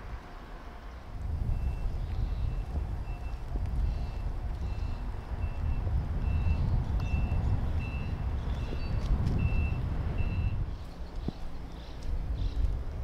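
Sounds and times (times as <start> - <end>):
continuous low rumble: 0.0 - 13.0
high electronic warning beeps: 4.7 - 8.2, 9.4 - 10.6.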